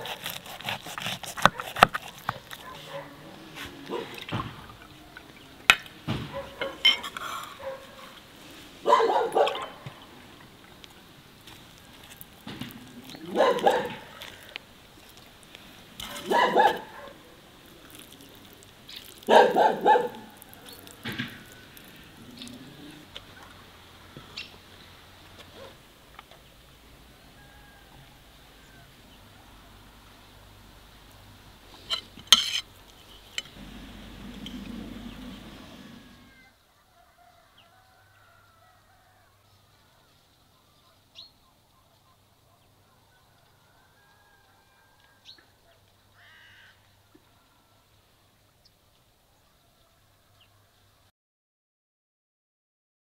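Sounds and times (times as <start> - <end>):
dog barking: 1.4 - 3.3, 3.9 - 4.2, 6.2 - 6.8, 7.6 - 8.2, 8.8 - 9.8, 13.2 - 14.2, 16.1 - 17.4, 19.3 - 20.3, 25.5 - 25.8
cutlery clatter: 31.9 - 32.7.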